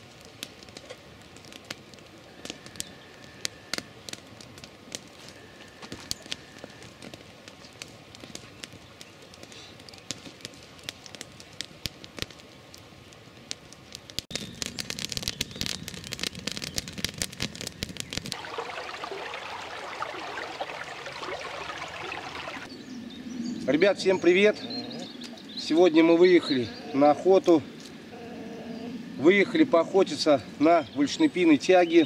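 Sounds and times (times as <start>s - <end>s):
campfire crackling and popping: 0.0s - 22.7s
stream rushing over logs: 18.3s - 22.7s.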